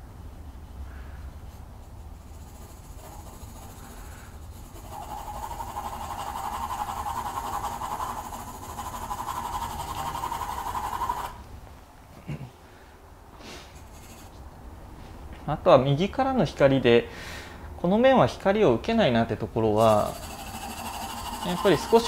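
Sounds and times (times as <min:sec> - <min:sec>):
pencil scratching on paper: 0:01.9 - 0:11.4, 0:13.7 - 0:14.3, 0:19.8 - 0:22.0.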